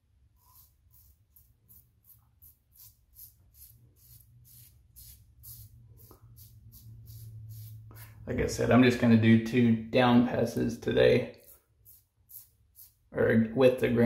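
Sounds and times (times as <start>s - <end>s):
razor scraping stubble: 0.4s - 8.7s.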